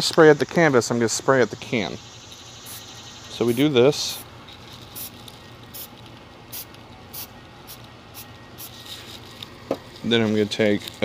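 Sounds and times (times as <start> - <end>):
spray paint can hissing: 2.2 - 9.0.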